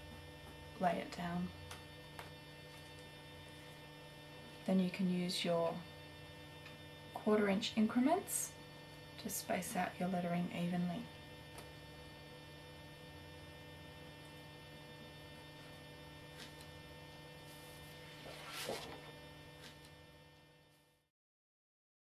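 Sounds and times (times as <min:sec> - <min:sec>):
electrical mains hum: 0:00.0 - 0:21.1
paper rustle: 0:17.6 - 0:19.8.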